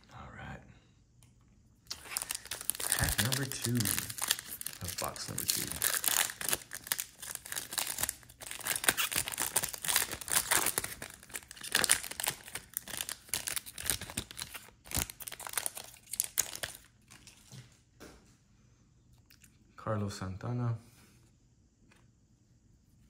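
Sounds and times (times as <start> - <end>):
wrapper tearing and crinkling: 1.9 - 17.5.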